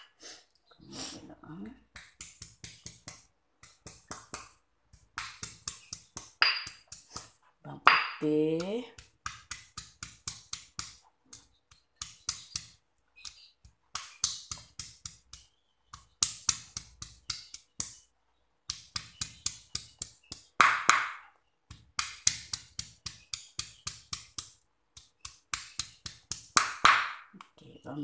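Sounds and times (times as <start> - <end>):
stone pestle pounding in mortar: 2.0 - 11.0, 18.7 - 24.5, 25.5 - 27.2.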